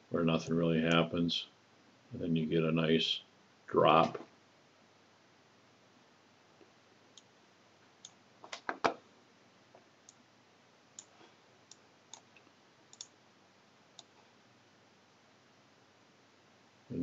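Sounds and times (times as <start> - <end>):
computer mouse clicking: 8.0 - 9.0, 11.0 - 13.2, 13.9 - 14.2.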